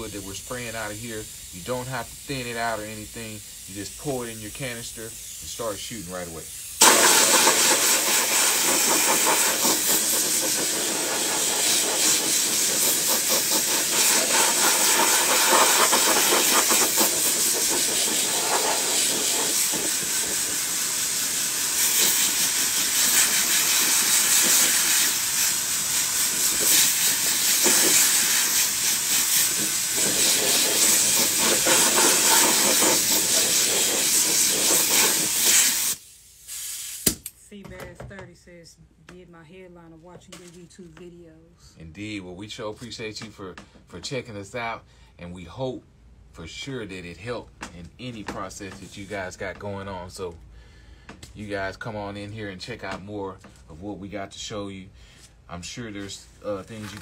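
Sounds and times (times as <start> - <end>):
spray gun hissing: 0.0 - 37.1.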